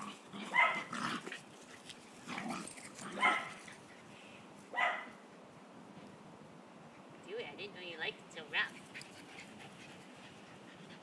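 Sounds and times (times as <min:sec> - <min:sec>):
dogs play-wrestling: 0:00.0 - 0:04.1, 0:08.8 - 0:11.0
dog barking: 0:00.5 - 0:00.9, 0:03.2 - 0:03.5, 0:04.8 - 0:05.2.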